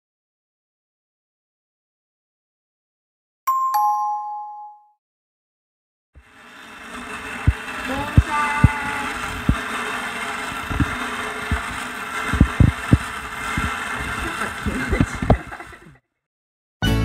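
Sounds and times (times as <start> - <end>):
steady background noise: 6.2 - 15.8.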